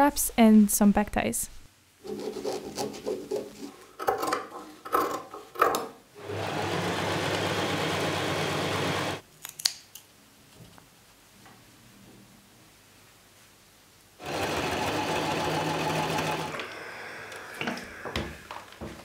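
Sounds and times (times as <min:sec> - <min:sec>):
electric sewing machine running: 0:06.2 - 0:09.2, 0:14.2 - 0:18.2.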